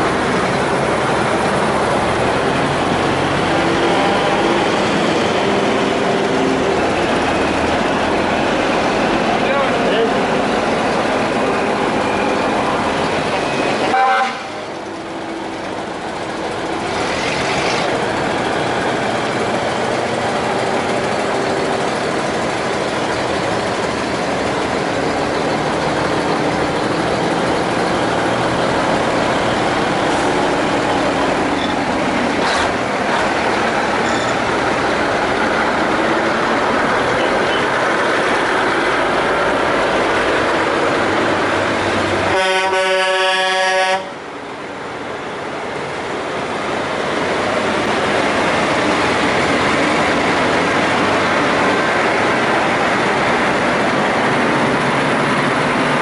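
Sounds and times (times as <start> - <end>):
trucks driving past: 0.0 - 56.0
truck horn blast: 13.7 - 14.7, 42.2 - 44.2.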